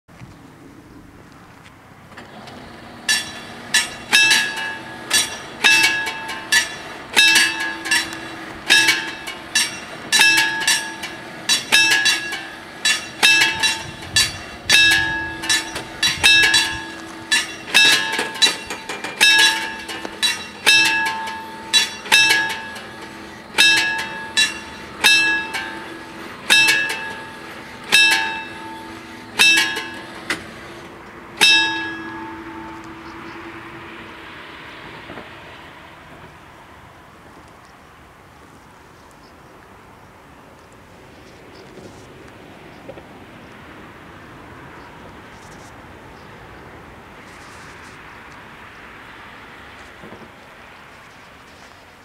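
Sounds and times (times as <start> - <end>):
level crossing bells ringing: 3.0 - 34.3.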